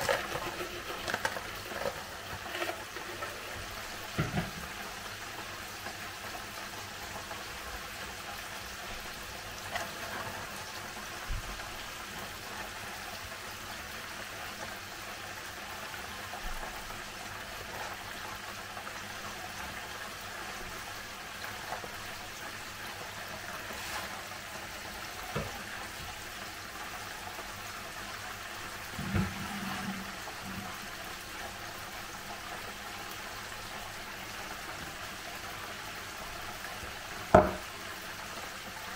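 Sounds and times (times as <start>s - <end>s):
hot oil frying: 0.0s - 38.9s
dishes knocking on wooden worktop: 37.3s - 37.6s.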